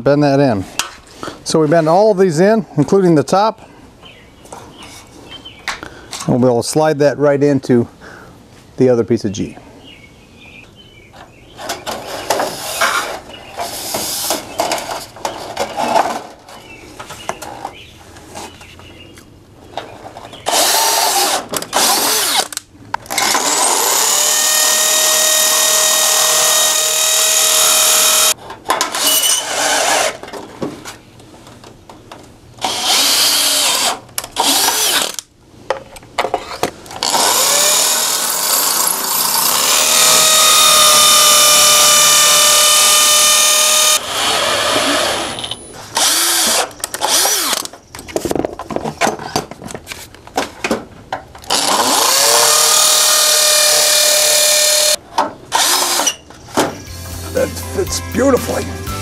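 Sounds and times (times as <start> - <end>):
cordless drill motor whine: 23.1 - 28.3, 37.0 - 47.7, 51.5 - 56.1.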